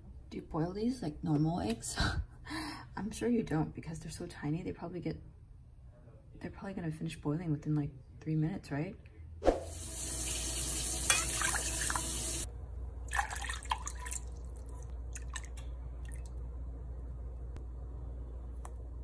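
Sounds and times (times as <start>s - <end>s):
liquid pouring into saucepan: 10.1s - 12.5s, 13.1s - 16.4s
low steady hum: 11.1s - 19.0s
liquid dripping: 13.1s - 16.5s.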